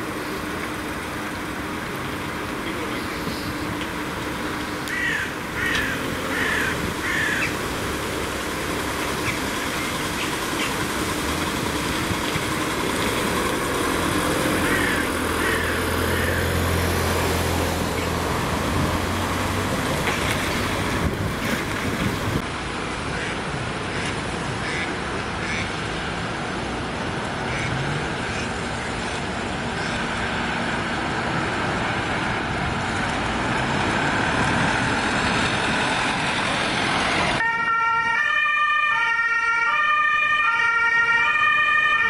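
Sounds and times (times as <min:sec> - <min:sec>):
van diesel engine driving past: 0:00.0 - 0:22.4
street noise: 0:00.0 - 0:42.0.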